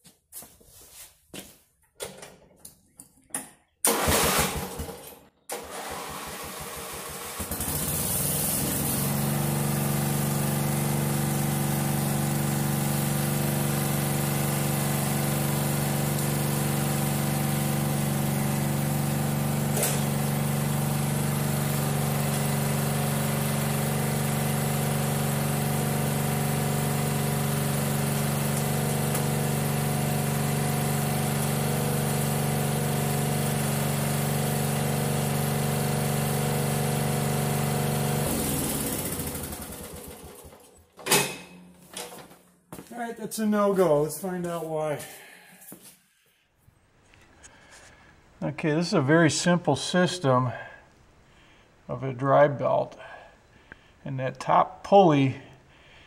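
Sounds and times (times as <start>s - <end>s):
lawn tractor engine running: 3.8s - 42.4s.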